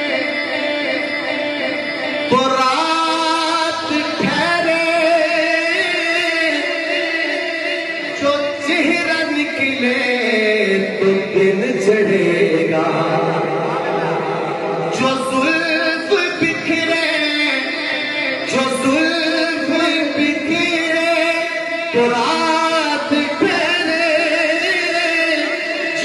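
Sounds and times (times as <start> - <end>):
man singing devotional song: 0.0 - 26.0.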